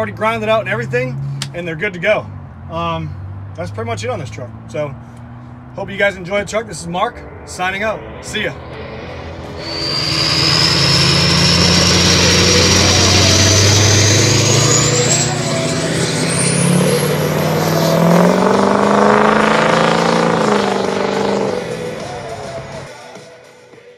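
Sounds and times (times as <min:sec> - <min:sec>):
diesel truck accelerating: 0:00.0 - 0:07.8, 0:08.7 - 0:23.0
turbo whistle: 0:09.4 - 0:18.5.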